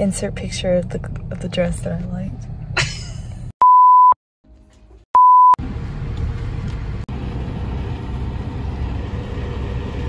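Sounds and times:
short electronic beeps: 0:03.6 - 0:04.2, 0:05.2 - 0:05.6.

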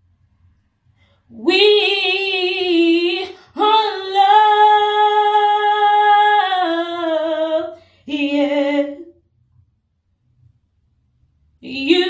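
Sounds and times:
woman singing a cappella: 0:01.3 - 0:09.3, 0:11.6 - 0:12.0.

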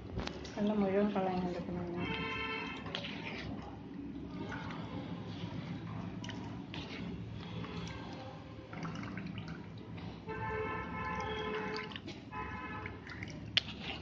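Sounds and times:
whey dripping and squelching: 0:00.2 - 0:14.0
spatula pressing wet curds: 0:00.3 - 0:09.6, 0:11.0 - 0:14.0.

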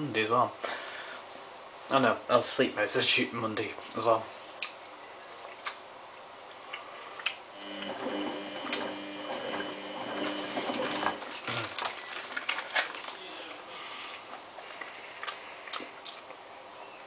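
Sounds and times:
washing machine motor hum: 0:07.5 - 0:11.8
light clicks of tumbling laundry: 0:08.6 - 0:13.3.

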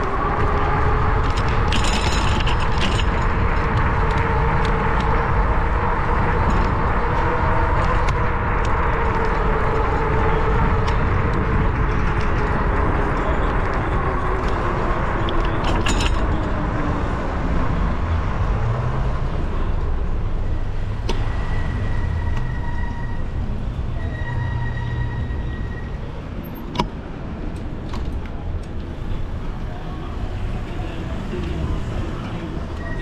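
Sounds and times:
wind buffeting microphone: 0:00.0 - 0:22.4
road rumble: 0:00.0 - 0:33.0.

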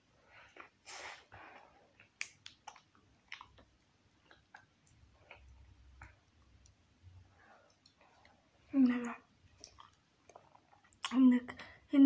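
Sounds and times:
mouth clicks and smacks: 0:01.9 - 0:06.8, 0:07.7 - 0:11.2.

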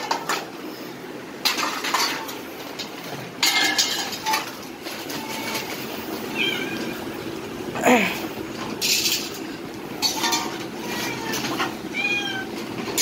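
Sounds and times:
metal plates clattering: 0:00.0 - 0:00.5, 0:01.4 - 0:06.1, 0:08.6 - 0:13.0.

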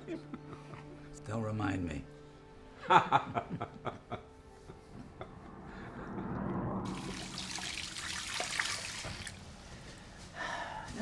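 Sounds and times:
man laughing: 0:02.8 - 0:05.5
tap water running: 0:06.9 - 0:09.5.

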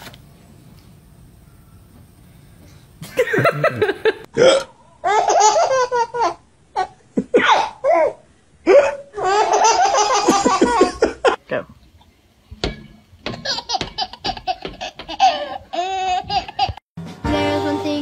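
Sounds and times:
baby laughing loudly: 0:05.0 - 0:11.4, 0:13.4 - 0:16.8.

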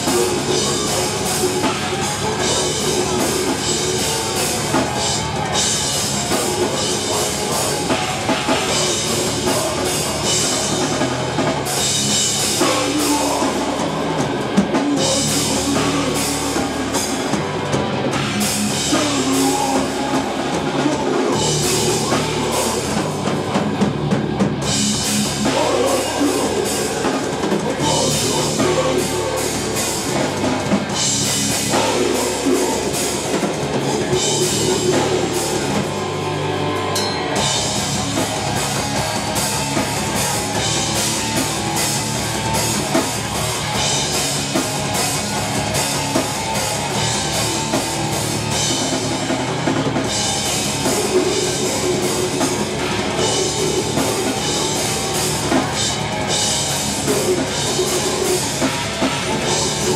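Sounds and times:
heavy metal band playing: 0:00.0 - 0:59.9.

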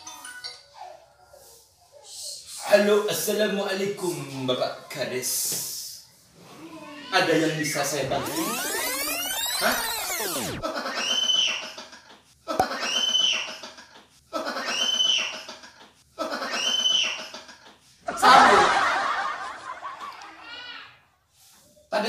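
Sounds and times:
loud noisy burst: 0:08.0 - 0:10.7
snickering laugh: 0:10.6 - 0:20.4.

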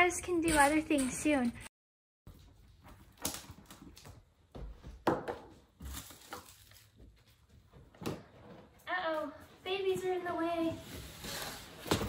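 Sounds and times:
plastic wrapping crinkling: 0:05.8 - 0:07.2.

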